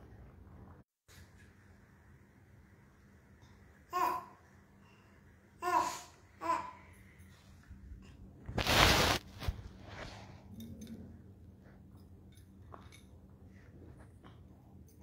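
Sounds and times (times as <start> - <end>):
low steady hum: 0.0 - 15.0
phone rustling against microphone: 8.5 - 10.3.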